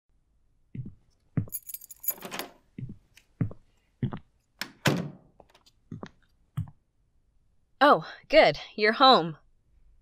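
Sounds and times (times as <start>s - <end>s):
footsteps: 0.8s - 2.2s
keys jangling: 1.5s - 2.5s.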